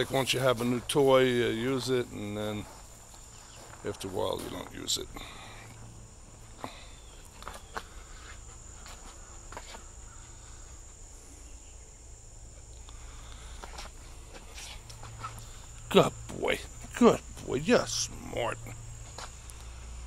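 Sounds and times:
paws and claws clicking on concrete: 0:12.7 - 0:15.8.

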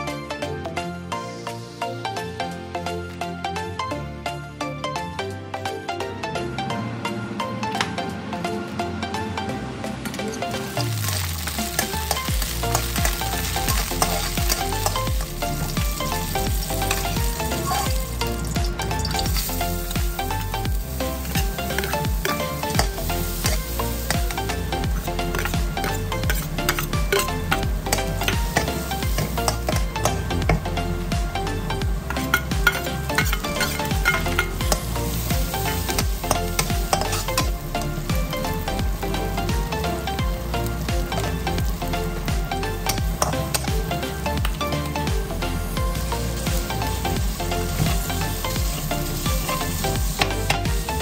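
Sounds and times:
background music with beat: 0:00.0 - 0:51.0
beans sizzling in hot oil: 0:10.2 - 0:51.0
metal spatula stirring in wok: 0:10.3 - 0:30.5, 0:32.1 - 0:38.5.

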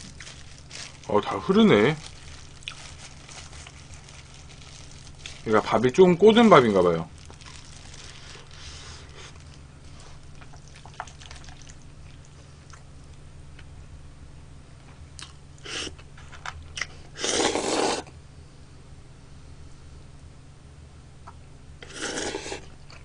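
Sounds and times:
person chewing food: 0:02.0 - 0:05.4, 0:07.3 - 0:13.7, 0:15.2 - 0:16.0, 0:21.8 - 0:23.0
loud noodle slurp: 0:17.2 - 0:18.1, 0:21.8 - 0:22.7.

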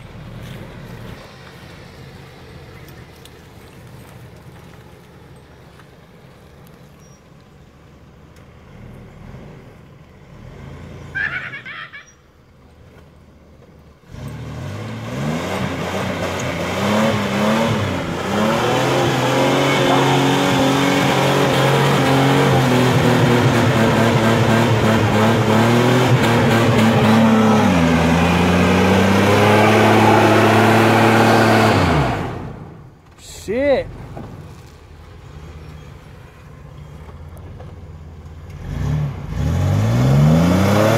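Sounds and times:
wheels spinning in mud: 0:00.0 - 0:10.9
pickup engine revving hard: 0:14.1 - 0:32.8, 0:38.6 - 0:40.9.

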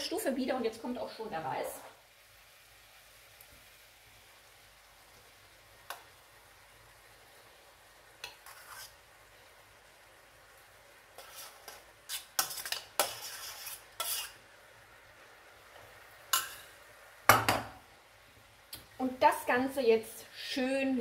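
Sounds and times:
metal fork scraping a pot: 0:08.2 - 0:09.0, 0:11.2 - 0:14.4.

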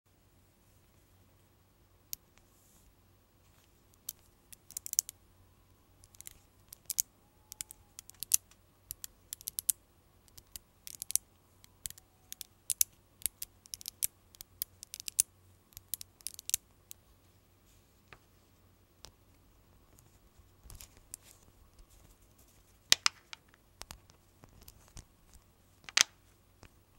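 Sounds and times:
magnet balls clicking together: 0:03.9 - 0:05.2, 0:06.0 - 0:17.0, 0:22.9 - 0:26.8.

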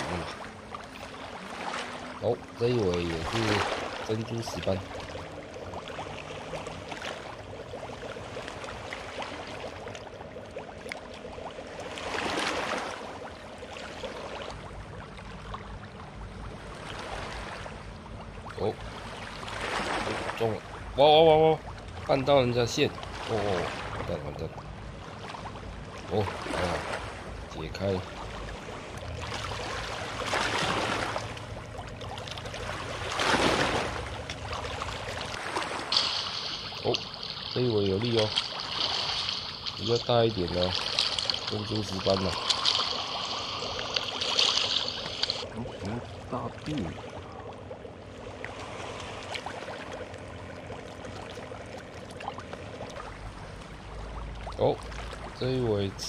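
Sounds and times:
lake water lapping at shore: 0:00.0 - 0:56.0
fish splashing at water surface: 0:32.1 - 0:45.5.

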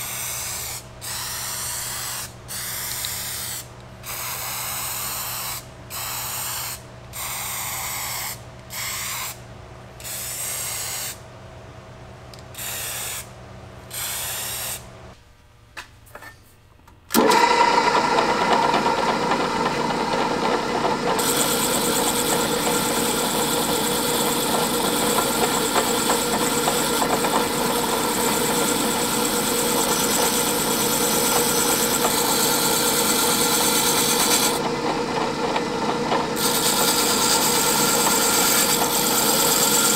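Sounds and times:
aerosol spray can hissing: 0:13.9 - 0:14.8
drill press with wire wheel: 0:17.1 - 0:39.9.

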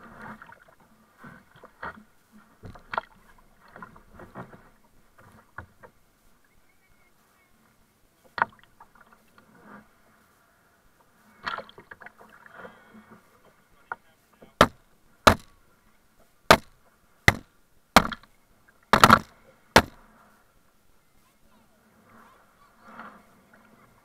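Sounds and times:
kayak paddle splashing water: 0:11.0 - 0:15.7.

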